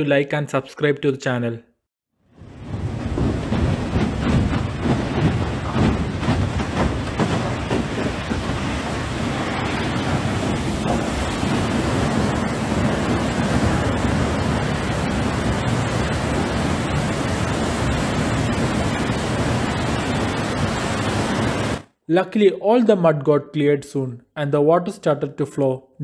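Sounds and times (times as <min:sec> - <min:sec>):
muddy water gushing: 0:02.5 - 0:21.8.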